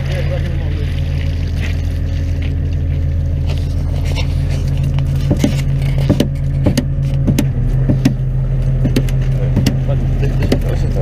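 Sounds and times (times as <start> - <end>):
boat engine running: 0.0 - 11.0
fish traps knocking and rattling: 4.8 - 8.2, 8.8 - 9.8.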